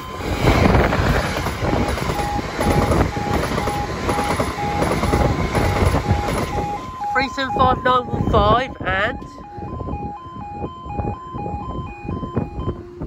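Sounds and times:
rail joints ticking: 0.0 - 8.0
train wheels rumbling on rails: 0.0 - 8.5
level crossing alarm beeping: 0.0 - 13.0.

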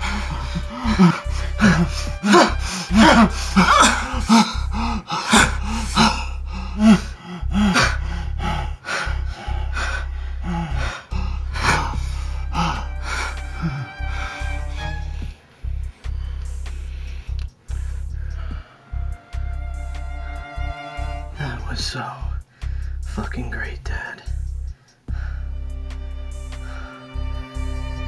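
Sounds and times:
man gasping and moaning: 0.0 - 15.2
soft background music: 0.0 - 28.0.

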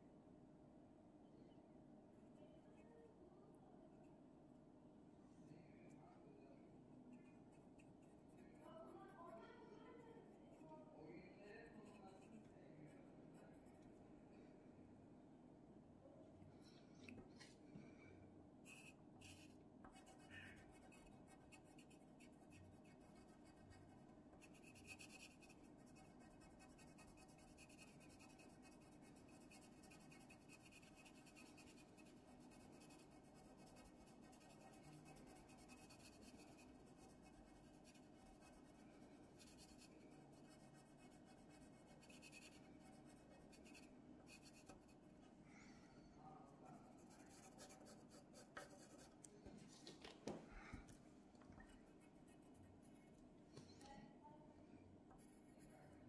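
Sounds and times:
low room hum: 0.0 - 56.0
pencil scratching on paper: 18.7 - 45.0, 46.6 - 49.2.

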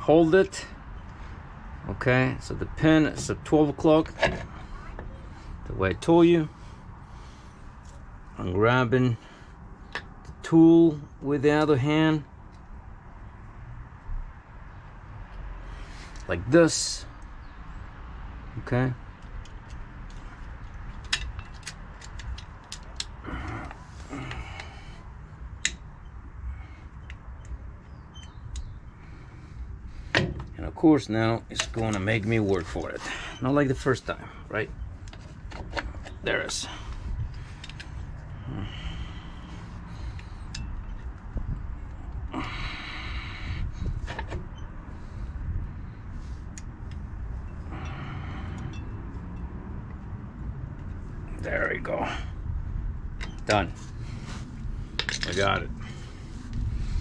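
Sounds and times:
steady low rumble: 12.3 - 57.0
faint metal clicks of a spring: 27.0 - 28.8.

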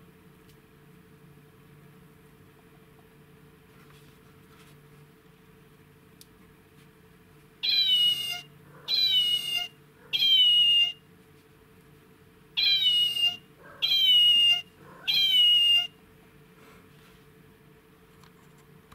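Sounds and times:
toy recorded meow: 7.6 - 11.0, 12.6 - 16.0.

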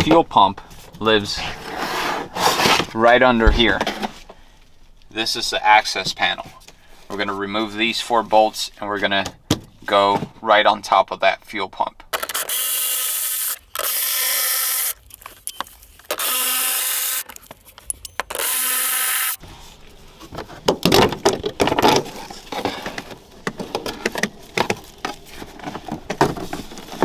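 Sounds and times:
electric ratchet running: 12.2 - 15.0, 16.1 - 17.3, 18.3 - 19.4.

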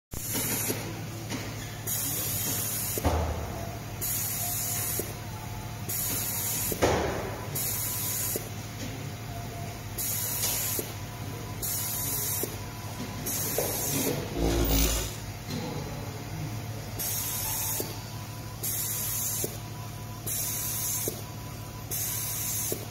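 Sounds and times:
pneumatic air hisses: 0.2 - 0.9, 1.8 - 3.3, 4.0 - 5.1, 5.9 - 6.9, 7.6 - 8.5, 10.0 - 10.9, 13.2 - 15.2, 17.0 - 18.0, 18.6 - 19.6, 20.3 - 21.2, 21.9 - 22.9
machine hum: 14.2 - 15.4.

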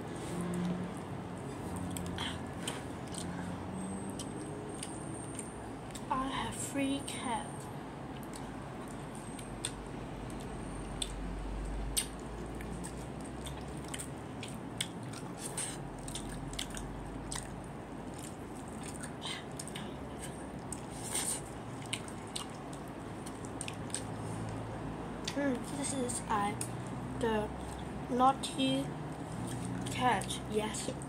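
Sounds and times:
child chewing food: 0.0 - 6.1, 7.6 - 31.0
mouth clicks and smacks: 8.1 - 24.6.

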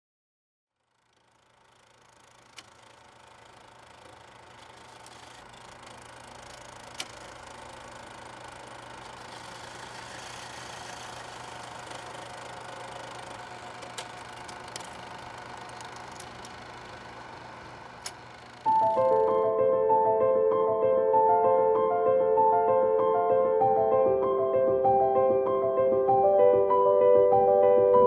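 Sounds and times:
mechanical running noise: 0.8 - 19.5
sharp clicks: 1.0 - 19.4.

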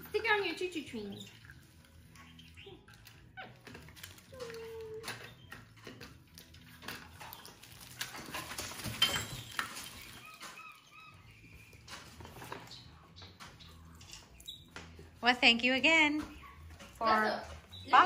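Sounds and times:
plastic toys and paper rustling: 2.8 - 15.0.

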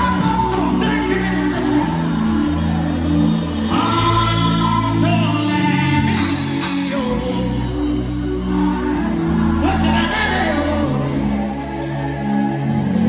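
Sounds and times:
person singing: 0.0 - 13.0
worship band music: 0.0 - 13.0.

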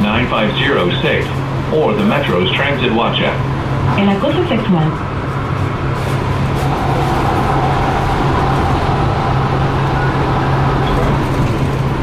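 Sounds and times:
train rumbling on track: 0.0 - 12.0
low hum: 6.1 - 12.0
high whine: 6.2 - 12.0.

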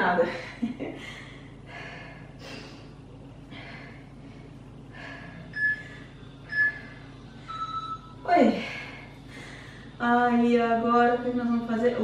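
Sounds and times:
woman breathing heavily: 0.2 - 7.2, 8.4 - 10.0.

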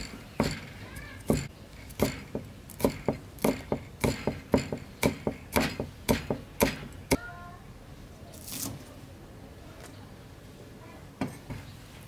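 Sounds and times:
cleaver chopping on wooden board: 1.3 - 7.2.

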